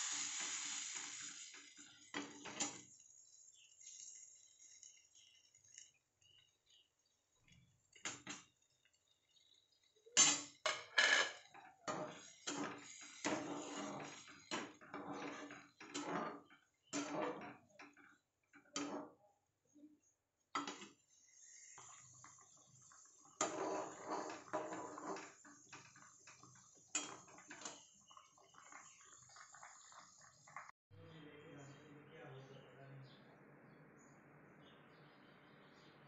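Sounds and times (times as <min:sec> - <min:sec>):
gravy bubbling hiss: 0:00.0 - 0:04.9
metal spatula scraping steel pot: 0:10.2 - 0:17.6, 0:21.4 - 0:27.9.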